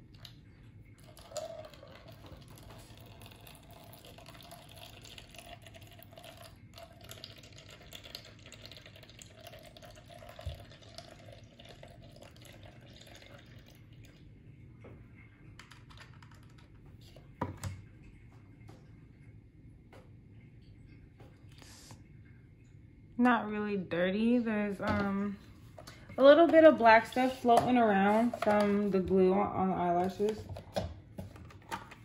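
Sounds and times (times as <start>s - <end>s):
water trickling into plastic cup: 0.0s - 14.3s.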